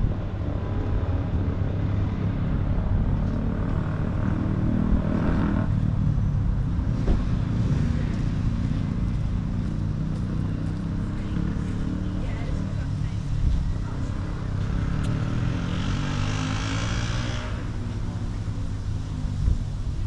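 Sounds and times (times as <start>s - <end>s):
road traffic rumble: 0.0s - 20.0s
vehicle passing: 6.8s - 19.4s.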